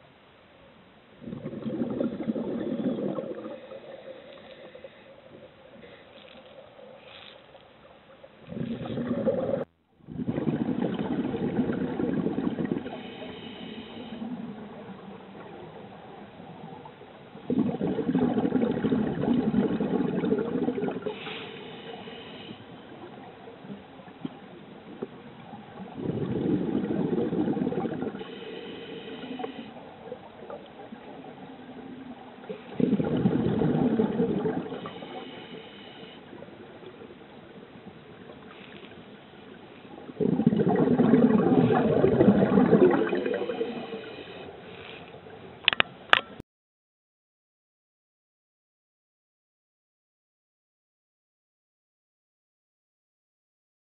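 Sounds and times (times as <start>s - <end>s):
exhaled bubbles gurgling: 1.2s - 5.6s, 8.2s - 38.5s, 39.4s - 44.2s
regulator inhalation hiss: 12.9s - 14.3s, 21.1s - 22.7s, 28.2s - 29.8s, 34.8s - 36.3s, 43.4s - 45.1s.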